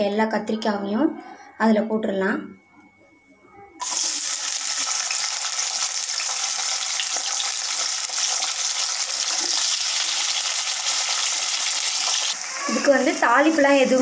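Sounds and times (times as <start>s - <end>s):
vegetables sizzling in hot oil: 3.8s - 14.0s.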